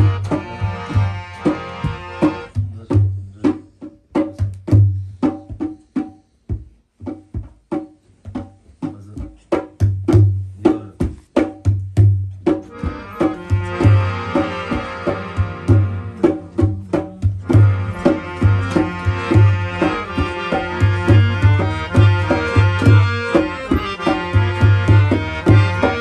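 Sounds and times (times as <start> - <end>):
harmonium chords: 0.0 - 3.4, 12.6 - 26.0
hand drum rhythm: 0.0 - 26.0.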